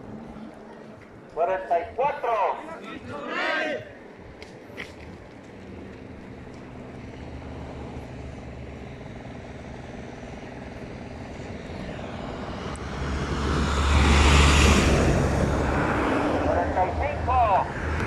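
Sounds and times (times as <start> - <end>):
heavy truck engine drone: 3.8 - 18.0.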